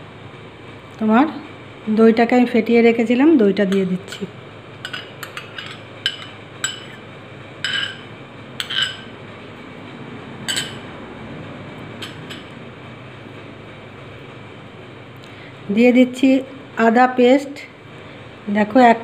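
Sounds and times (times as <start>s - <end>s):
spoon clinking against glass bowl: 3.7s - 7.0s, 7.6s - 9.1s, 10.5s - 10.8s.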